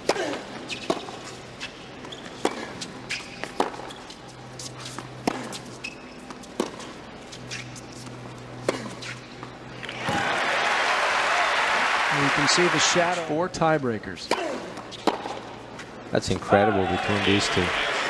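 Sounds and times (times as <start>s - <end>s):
tennis ball hit by racquets: 0.0s - 10.4s, 14.2s - 15.6s.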